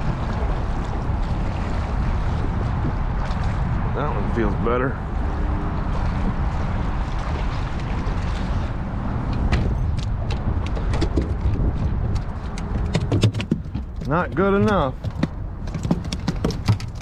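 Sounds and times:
wind and water rumble: 0.0 - 17.0
knocks and taps on boat: 9.3 - 17.0.

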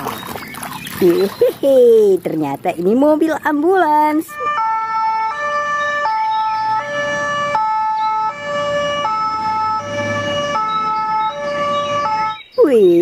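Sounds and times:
vehicle engine rumble: 0.0 - 12.9
two-tone ambulance siren: 4.0 - 12.6.

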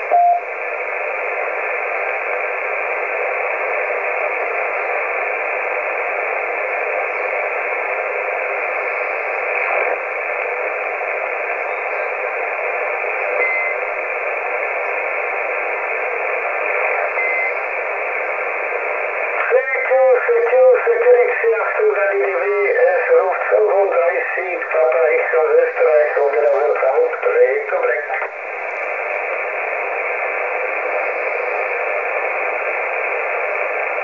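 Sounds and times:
faint beeps: 0.0 - 0.5, 13.3 - 13.9, 17.0 - 17.6
radio static hiss: 0.0 - 34.0.

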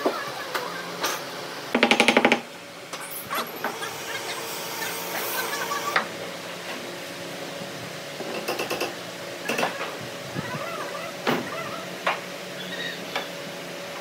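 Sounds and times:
power tool hammering: 1.7 - 2.5, 8.2 - 9.9.

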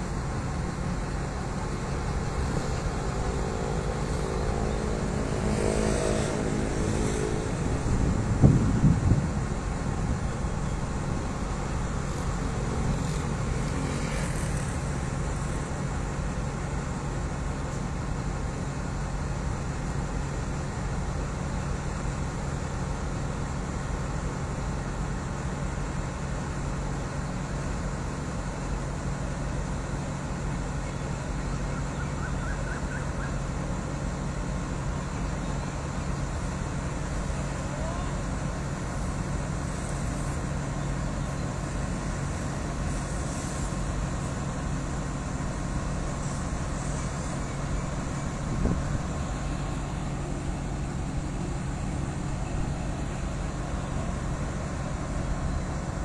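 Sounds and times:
locomotive engine idling: 0.0 - 5.5, 6.4 - 56.0.

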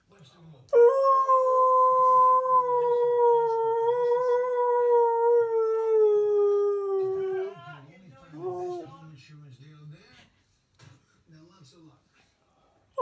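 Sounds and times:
husky howling: 0.8 - 7.7.

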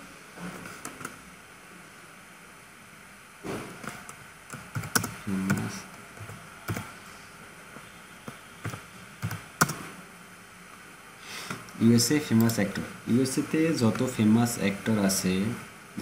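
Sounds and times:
keyboard keystrokes: 3.8 - 6.9, 8.6 - 9.8.

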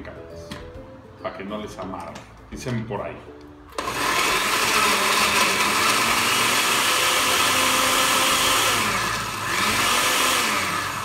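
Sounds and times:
blender running: 3.8 - 11.0.

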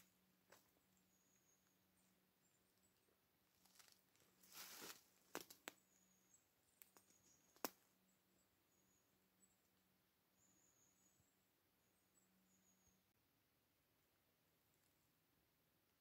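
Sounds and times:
soft rustle: 3.5 - 5.6.

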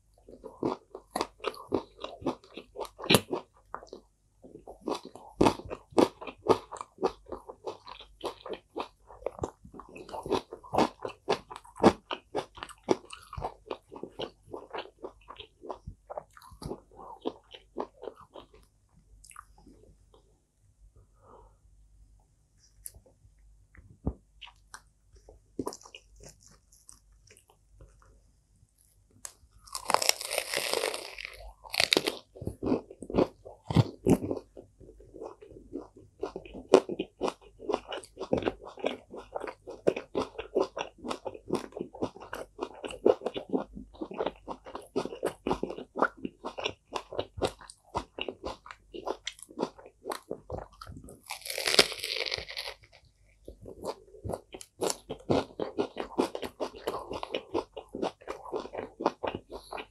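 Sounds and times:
crunching and chewing: 0.2 - 20.2, 24.1 - 28.2, 28.8 - 59.9
crunchy bite: 29.2 - 34.4, 46.4 - 53.0.

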